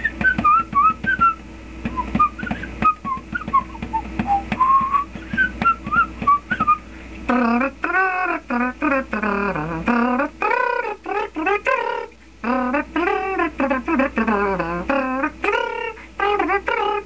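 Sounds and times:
man whistling a tune: 0.0 - 6.9
person singing: 7.3 - 17.0.

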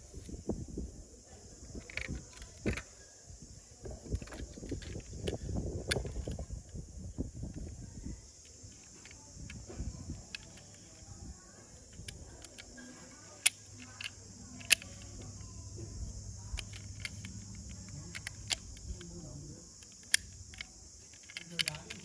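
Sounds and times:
metal toy car clicks and taps: 1.8 - 2.9, 11.9 - 15.2, 16.5 - 19.2, 19.8 - 22.0
toy doors snapping shut: 12.0 - 15.2, 16.5 - 19.1, 19.8 - 22.0.

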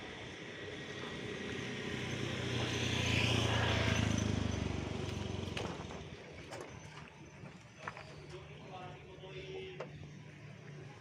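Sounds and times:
vehicle driving past: 0.0 - 6.8.

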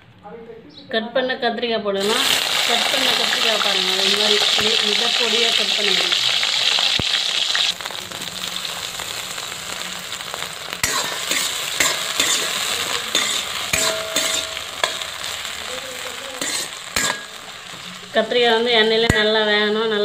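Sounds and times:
vegetables sizzling in oil: 2.0 - 20.0
metal spoon scraping pan: 10.8 - 15.5, 16.4 - 18.0.

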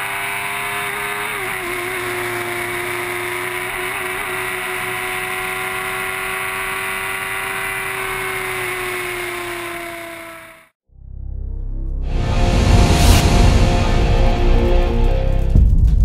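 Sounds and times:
racecar engine at high revs: 0.0 - 10.8.

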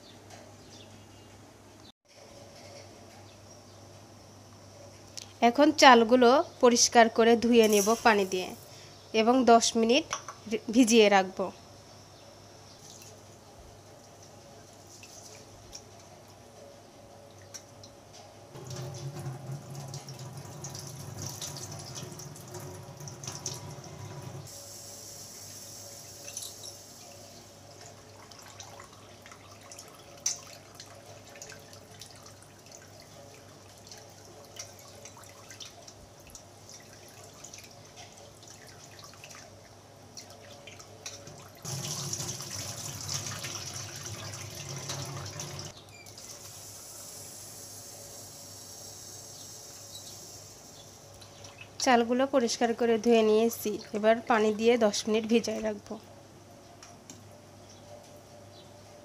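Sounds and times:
water dripping and splashing: 12.8 - 13.3, 14.0 - 16.1, 18.6 - 24.4, 27.7 - 46.5, 51.1 - 51.8
tap water running into steel bowl: 41.0 - 46.4.

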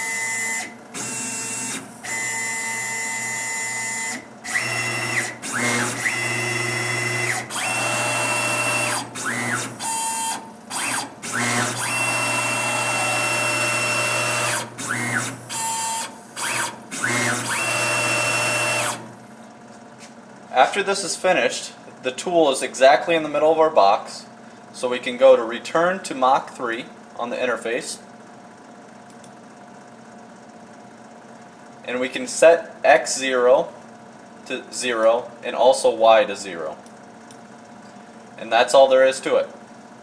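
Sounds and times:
cnc mill axis motor whine: 0.0 - 19.3.

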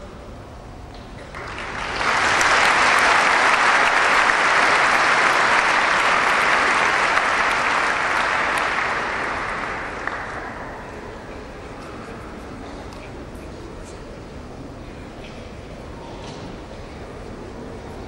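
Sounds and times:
audience applauding: 1.2 - 11.3.

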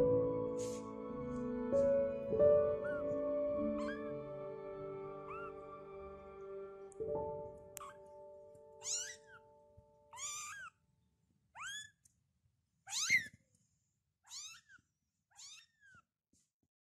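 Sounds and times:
kitten meowing: 2.8 - 3.2, 3.8 - 4.2, 5.3 - 5.7, 7.7 - 8.1, 8.8 - 9.5, 10.1 - 10.8, 11.6 - 12.0, 12.9 - 13.4, 14.3 - 16.0.

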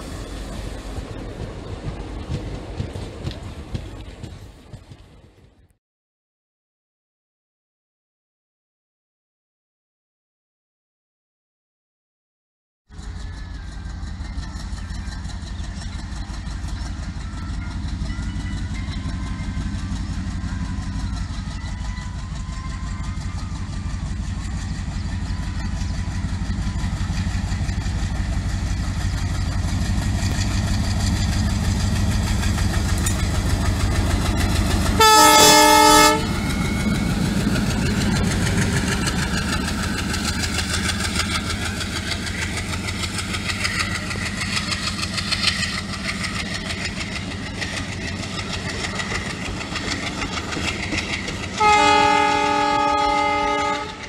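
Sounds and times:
diesel locomotive engine chugging: 0.0 - 5.7, 12.9 - 54.0
locomotive horn blast: 35.0 - 37.0, 51.5 - 54.0.

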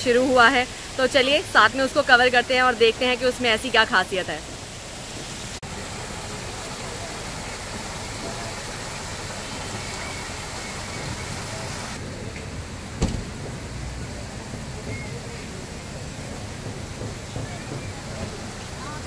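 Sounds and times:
fountain water splashing: 0.0 - 19.0
low thump: 13.0 - 13.6.

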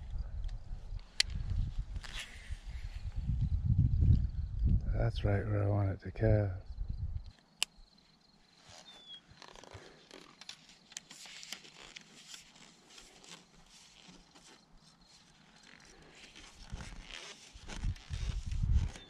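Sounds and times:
faint rustling: 8.0 - 19.0.

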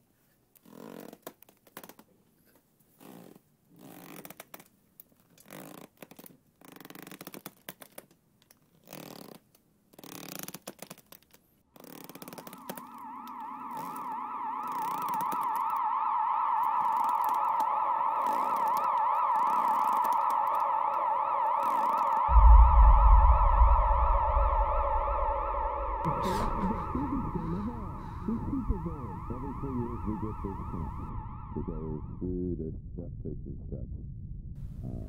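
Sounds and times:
wavering siren-like tone: 12.1 - 32.3.

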